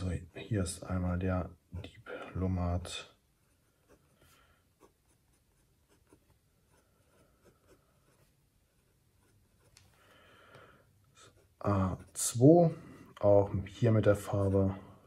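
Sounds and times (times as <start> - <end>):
fountain pen scratching paper: 3.5 - 9.8.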